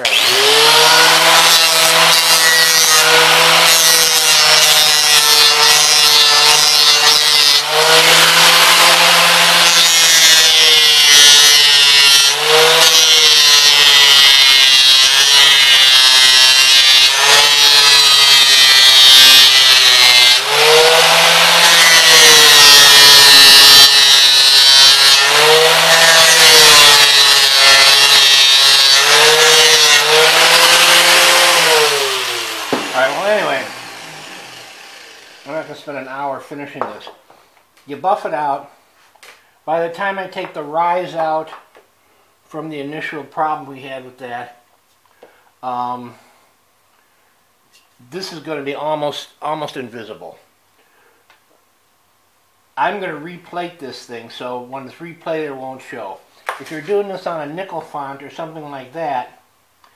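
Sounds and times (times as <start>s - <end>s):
angle grinder sanding brass: 0.0s - 35.7s
grinder winding down: 0.0s - 35.7s.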